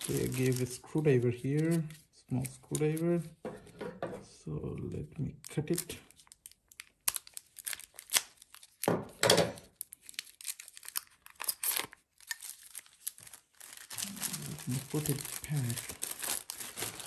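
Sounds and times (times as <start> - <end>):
stiff plastic crinkling: 0.0 - 3.2, 5.4 - 8.9, 9.6 - 17.0
scissors cutting plastic: 6.7 - 8.9, 9.6 - 12.8.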